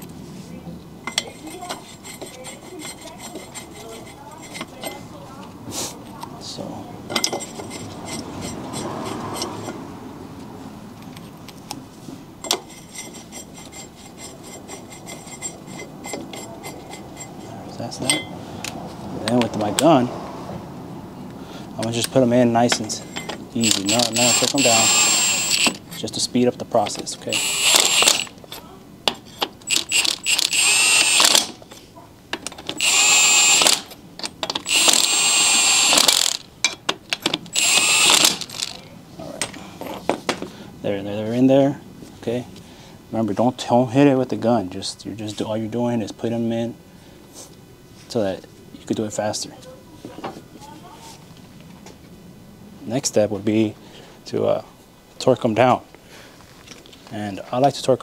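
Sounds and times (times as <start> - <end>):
metal hardware clinking: 1.0 - 5.1, 7.1 - 8.8, 12.4 - 18.4, 22.0 - 26.2, 26.8 - 40.0
impact wrench whining: 22.9 - 26.0, 27.2 - 28.5, 29.6 - 31.6, 32.6 - 36.5, 37.2 - 38.9.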